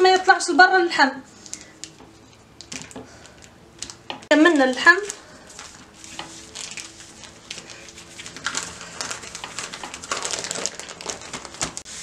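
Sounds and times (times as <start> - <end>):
plastic bag crinkling: 1.4 - 12.0.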